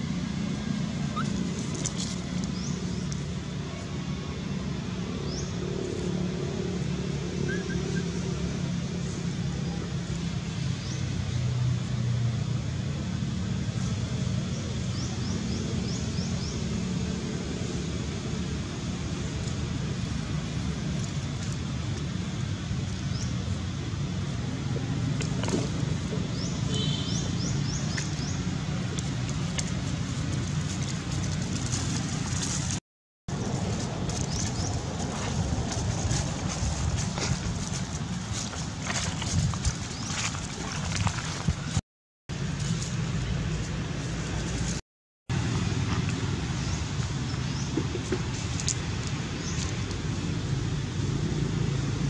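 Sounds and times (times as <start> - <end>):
low outdoor rumble: 0.0 - 52.0
vehicle engine running: 0.0 - 52.0
dry leaves crackling: 0.1 - 4.6, 26.4 - 44.8.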